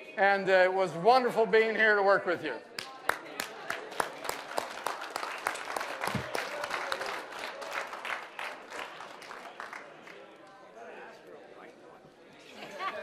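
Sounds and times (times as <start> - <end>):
audience applauding: 2.8 - 10.3.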